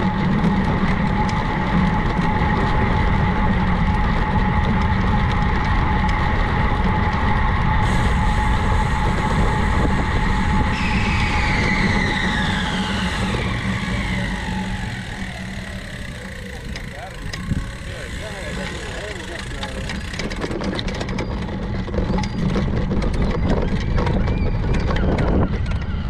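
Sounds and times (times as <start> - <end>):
whine falling in pitch: 0.0 - 20.0
steady hum: 0.0 - 20.6
bicycle road noise: 0.0 - 26.0
wind rushing: 1.1 - 18.0.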